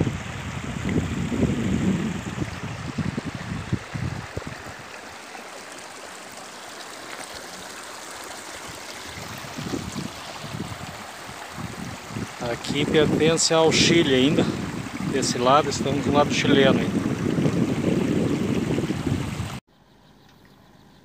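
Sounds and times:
wind buffeting microphone: 0.0 - 5.2, 8.6 - 19.6
stream rushing: 0.0 - 19.6.

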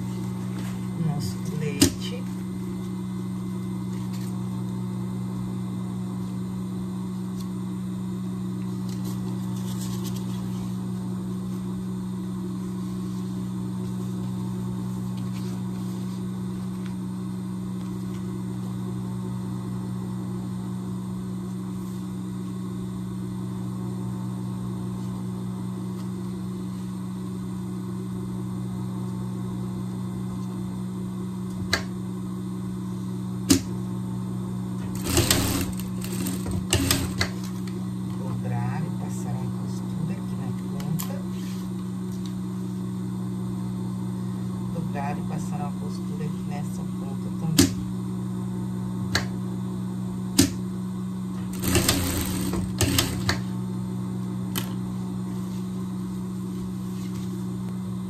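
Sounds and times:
sewing machine motor humming: 34.8 - 37.5, 51.3 - 53.5.

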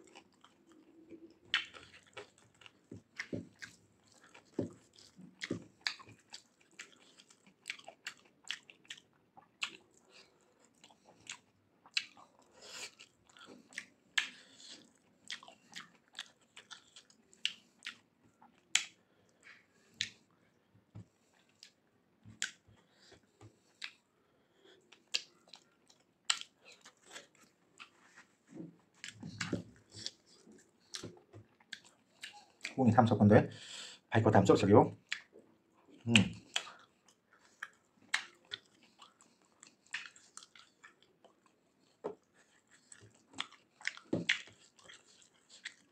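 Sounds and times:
person chewing: 0.0 - 20.3, 21.1 - 21.8, 22.4 - 32.8, 35.0 - 45.9
mouth clicks and smacks: 1.2 - 2.3, 18.7 - 20.2, 22.4 - 22.6, 25.0 - 27.9, 29.0 - 32.8, 35.0 - 35.4, 36.0 - 41.4, 42.9 - 45.8.

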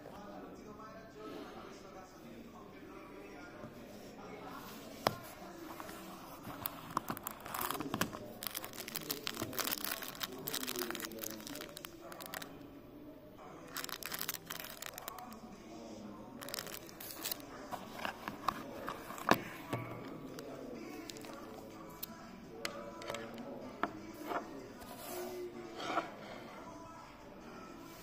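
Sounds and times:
plastic wrapper crinkling: 6.4 - 12.6, 13.6 - 15.4, 16.4 - 20.4, 21.0 - 22.1.

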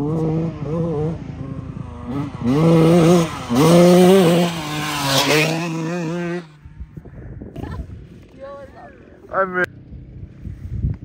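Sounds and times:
dirt bike engine revving: 0.0 - 6.8.

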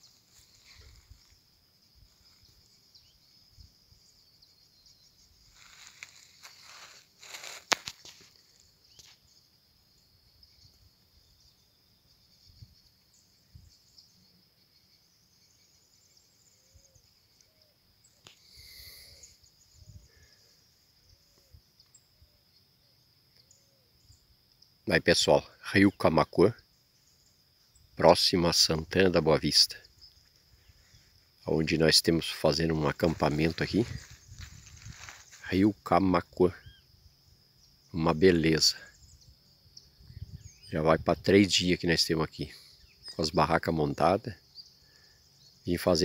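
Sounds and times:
rustling: 0.0 - 2.8, 5.4 - 9.2, 32.9 - 35.5
insects chirring: 0.0 - 46.0.

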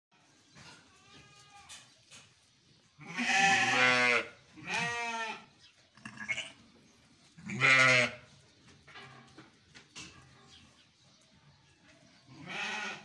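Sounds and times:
sheep bleating: 3.0 - 6.6, 7.4 - 8.2, 12.3 - 13.0.

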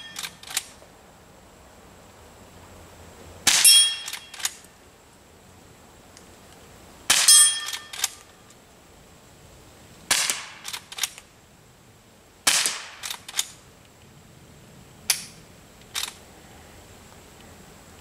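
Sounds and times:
short clicks: 3.5 - 4.7, 15.1 - 16.2
quiet rifle shots: 7.1 - 8.3, 10.1 - 11.3, 12.4 - 13.6
steel gong target ringing: 7.3 - 7.8.

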